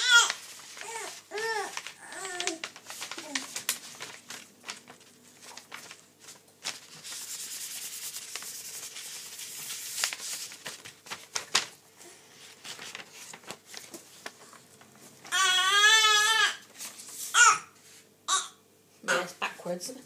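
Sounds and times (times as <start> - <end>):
gloved hands rubbing paper: 0.0 - 11.7.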